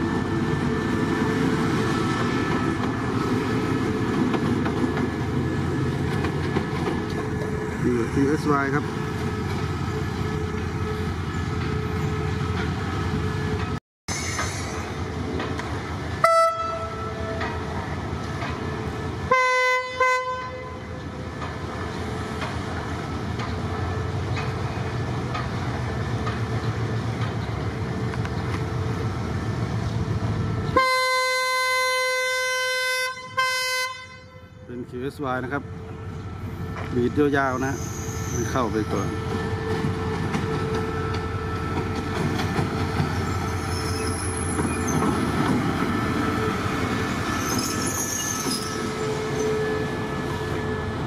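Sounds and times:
rumble of passing train: 0.0s - 51.0s
locomotive horn blasts: 16.2s - 17.4s, 19.3s - 20.9s, 30.8s - 34.6s.

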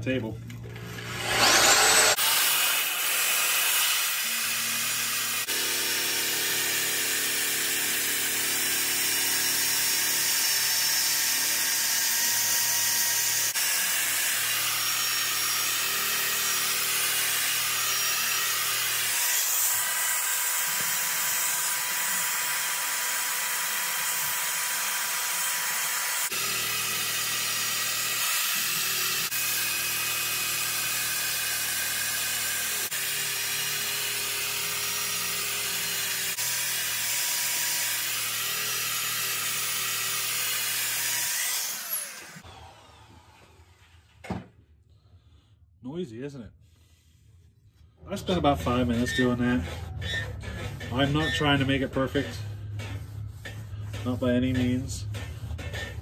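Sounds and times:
wire brush drill scraping metal: 0.8s - 5.6s, 48.2s - 56.0s.

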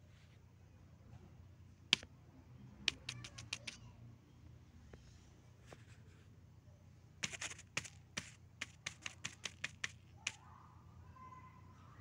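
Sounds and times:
quick sharp clicks: 2.9s - 3.8s, 7.2s - 10.4s.

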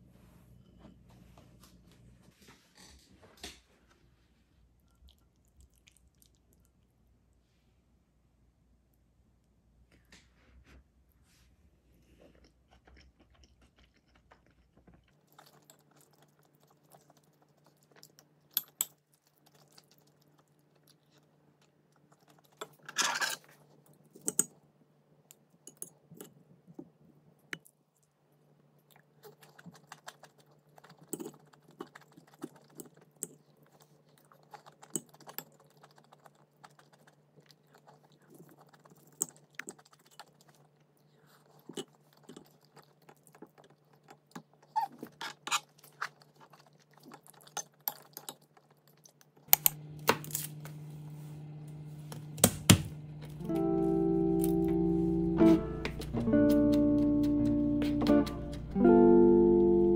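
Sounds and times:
chewing: 4.8s - 7.1s, 12.1s - 24.5s, 27.6s - 49.7s, 55.8s - 58.8s
steady low hum: 49.5s - 59.9s.

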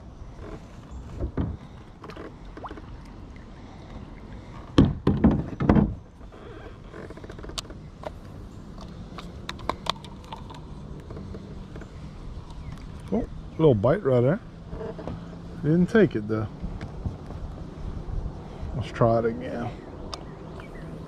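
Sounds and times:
heavy thumps against kayak hull: 4.7s - 6.0s.

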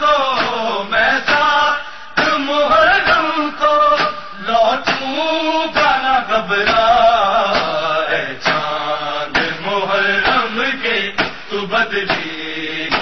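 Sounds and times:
voices chanting a lament: 0.0s - 13.0s
steady beat: 12.0s - 13.0s.

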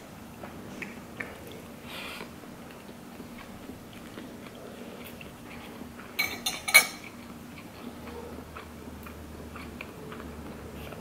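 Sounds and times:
metal spoon clinking ceramic plate: 6.2s - 7.0s.

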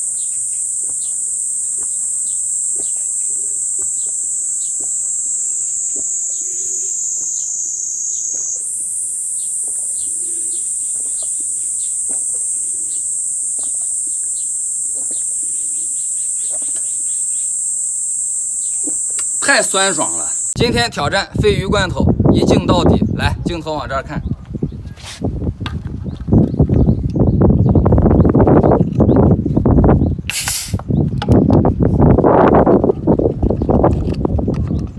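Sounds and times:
insects chirring: 0.0s - 20.6s.

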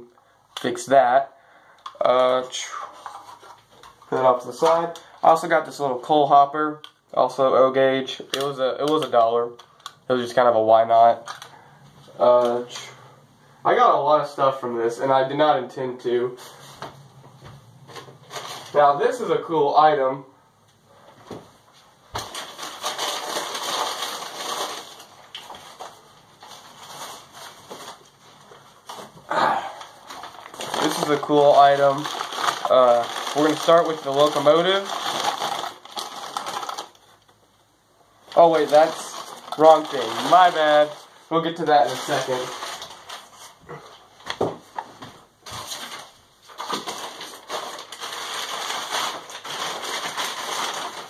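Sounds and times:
newspaper wrapping rustling: 17.8s - 19.3s, 22.1s - 29.2s, 29.8s - 37.3s, 38.2s - 51.0s.

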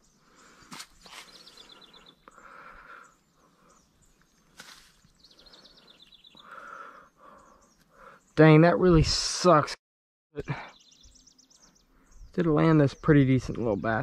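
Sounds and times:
outdoor background noise: 0.0s - 9.8s
songbird trilling: 1.1s - 8.4s, 10.4s - 14.0s.

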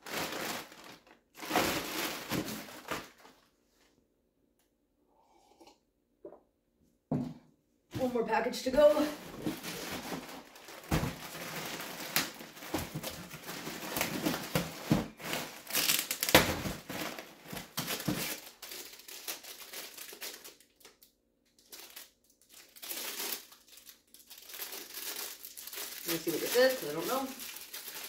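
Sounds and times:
plastic bag crinkling: 0.0s - 3.5s, 9.0s - 28.0s.

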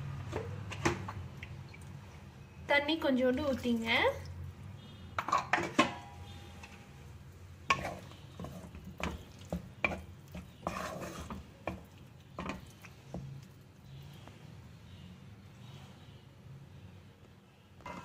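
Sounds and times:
spoon scraping wet mixture: 7.6s - 14.4s.

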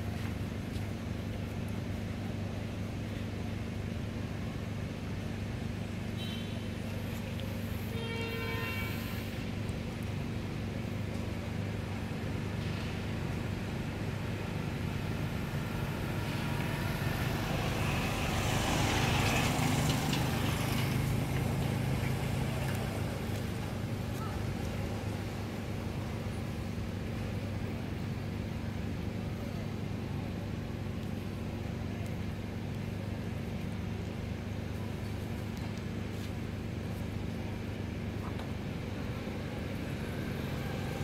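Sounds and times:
low engine hum of traffic: 0.0s - 41.0s
motor vehicle passing: 15.6s - 25.4s.

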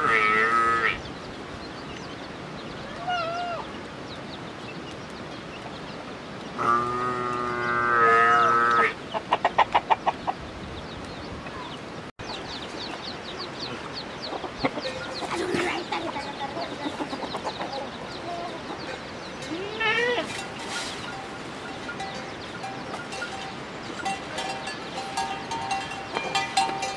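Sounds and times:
hen clucking loudly: 7.8s - 10.4s, 14.3s - 19.0s.

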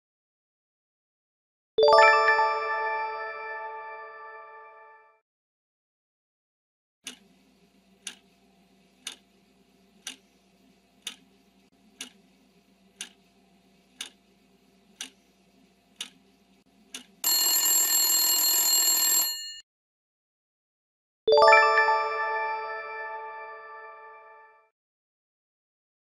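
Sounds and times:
timer ticking: 7.1s - 7.3s, 8.0s - 8.3s, 9.0s - 9.3s, 10.0s - 10.3s, 11.0s - 11.4s, 12.0s - 12.2s, 13.0s - 13.2s, 14.0s - 14.2s, 14.9s - 15.2s, 16.0s - 16.2s, 16.9s - 17.2s
loud alarm ringing: 17.2s - 19.6s.

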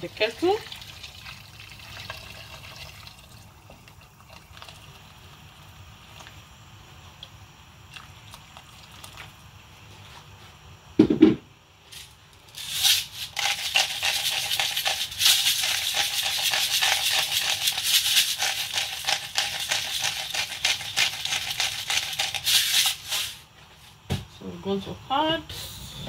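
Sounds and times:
low thump: 11.0s - 11.4s
seasoning container rattling: 12.5s - 23.2s.

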